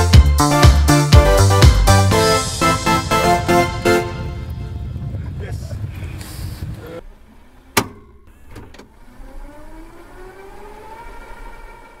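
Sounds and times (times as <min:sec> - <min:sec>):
mechanical clunk: 0:07.7 - 0:09.0
rewind motor whine: 0:08.9 - 0:12.0.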